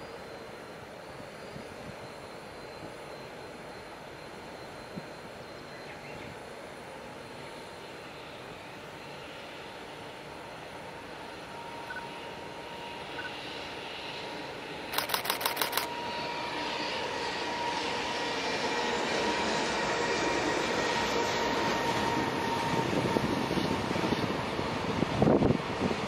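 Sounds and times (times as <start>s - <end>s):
camera shutter clicks: 15.0s - 15.9s
freight train rumbling over bridge: 18.2s - 26.0s.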